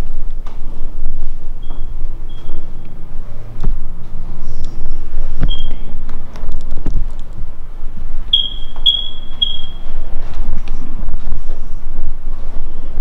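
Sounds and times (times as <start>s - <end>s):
short high electronic beeps: 8.3s - 9.9s.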